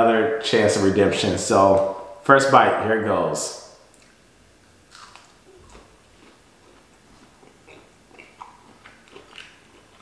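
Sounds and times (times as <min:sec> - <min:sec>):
person chewing with crunches: 0:04.8 - 0:10.0.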